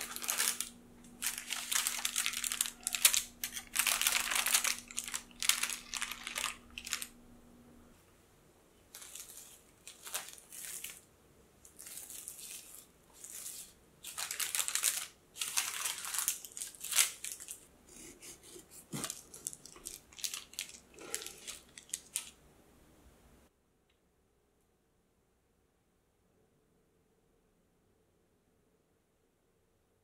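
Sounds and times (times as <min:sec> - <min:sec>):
plastic film and paper crinkling: 0:00.0 - 0:07.2, 0:08.9 - 0:22.4.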